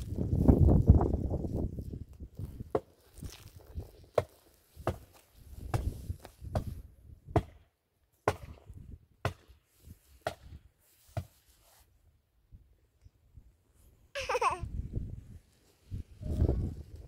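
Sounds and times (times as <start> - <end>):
axe chopping wood: 4.1 - 7.6, 8.2 - 9.6, 10.2 - 10.6.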